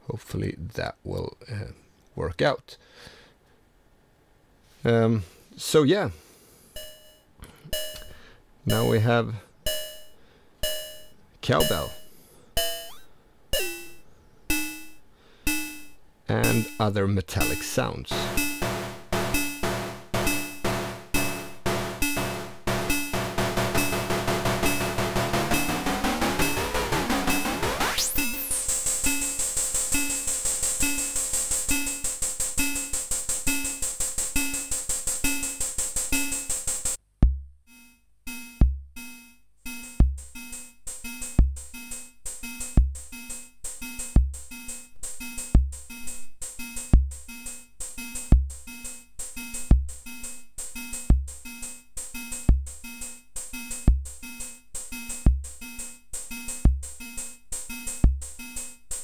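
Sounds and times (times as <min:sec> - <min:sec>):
ringing synth tones: 0:06.8 - 0:09.0, 0:09.7 - 0:16.8, 0:17.4 - 0:36.6
metallic cowbell-like hits: 0:09.7 - 0:13.0
rapid metallic ticks: 0:13.6 - 0:16.8, 0:17.4 - 0:37.0, 0:38.3 - 0:59.0
deep kick drum: 0:18.1 - 0:27.6, 0:37.2 - 0:37.6, 0:38.6 - 0:39.0, 0:39.9 - 0:41.8, 0:42.4 - 0:43.2, 0:44.1 - 0:46.0, 0:46.6 - 0:47.4, 0:48.0 - 0:48.8, 0:49.4 - 0:50.1, 0:50.8 - 0:51.5, 0:52.2 - 0:52.9, 0:53.8 - 0:54.3, 0:55.2 - 0:55.6, 0:56.6 - 0:57.1, 0:58.0 - 0:58.4.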